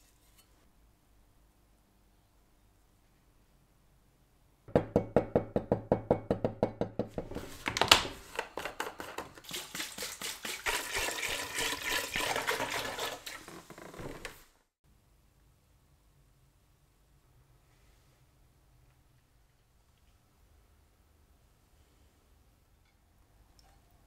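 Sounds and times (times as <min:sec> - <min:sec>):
liquid pouring and splashing: 0:09.3 - 0:13.6.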